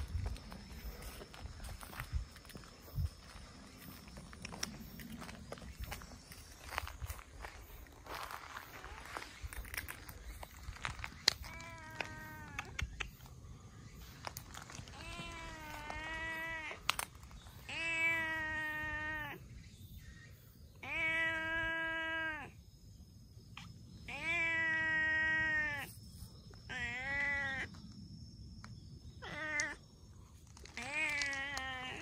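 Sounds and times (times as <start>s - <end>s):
cat meowing: 11.5s - 12.8s, 14.9s - 16.8s, 17.7s - 19.4s, 20.8s - 22.5s, 24.1s - 25.9s, 26.7s - 27.7s, 29.2s - 29.8s.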